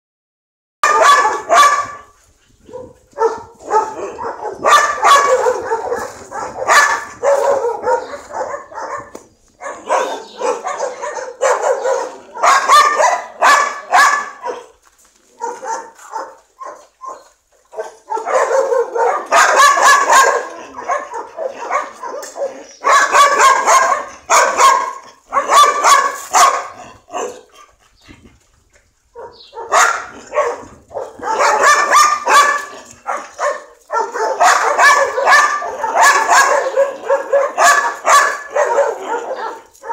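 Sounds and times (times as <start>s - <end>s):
dogs barking: 0.8s - 27.6s, 29.1s - 39.9s.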